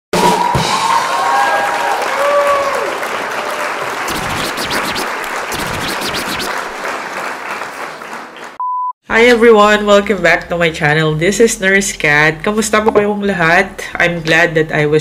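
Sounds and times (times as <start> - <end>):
crowd applauding: 0.2 - 8.6
gliding whistle-like tones: 4.1 - 6.6.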